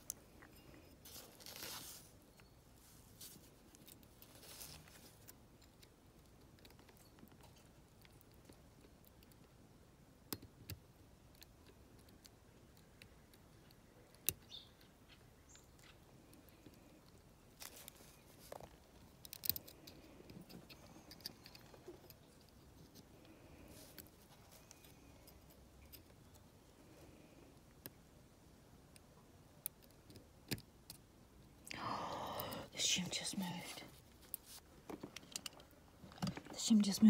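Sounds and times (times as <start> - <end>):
small metal clicks of lock tool: 19.1 - 22.2.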